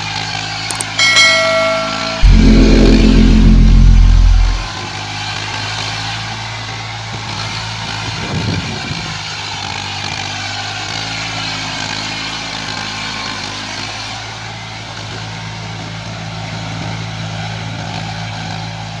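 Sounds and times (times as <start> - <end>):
loud low rumble: 2.0 - 4.7.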